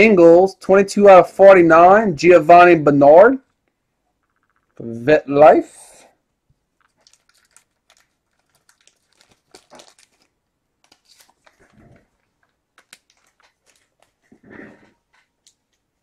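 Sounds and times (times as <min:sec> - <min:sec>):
crinkling card packaging: 0:06.6 - 0:14.4.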